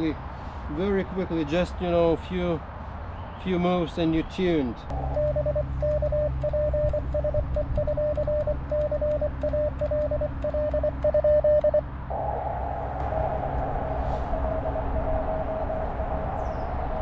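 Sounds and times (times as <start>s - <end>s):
morse code tone: 4.9s - 11.8s
faint morse signal: 5.0s - 16.2s.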